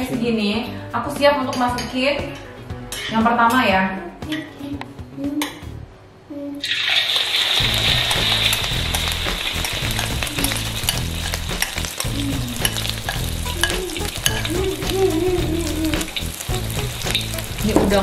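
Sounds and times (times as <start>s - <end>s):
batter frying in hot oil: 6.6s - 18.0s.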